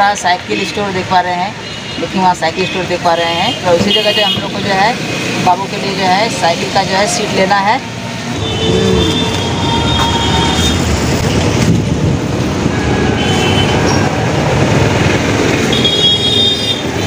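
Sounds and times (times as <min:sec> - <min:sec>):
passing traffic: 0:00.0 - 0:17.0
heavy rain: 0:07.9 - 0:15.7.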